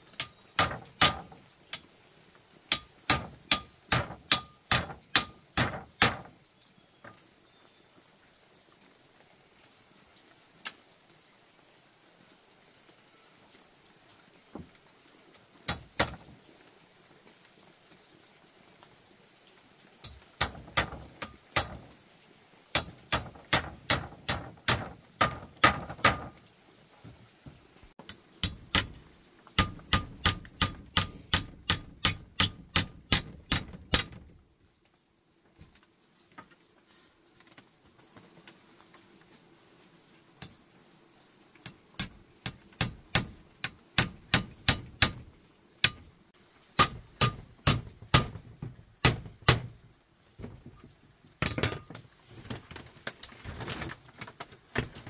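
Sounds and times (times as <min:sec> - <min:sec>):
hammer driving nails: 0:00.6 - 0:01.4, 0:02.7 - 0:06.3, 0:20.0 - 0:21.8, 0:29.6 - 0:34.2.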